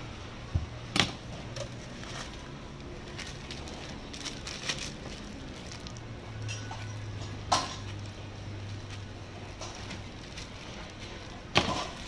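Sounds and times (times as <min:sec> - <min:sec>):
plastic bag crackling: 0:01.2 - 0:12.0.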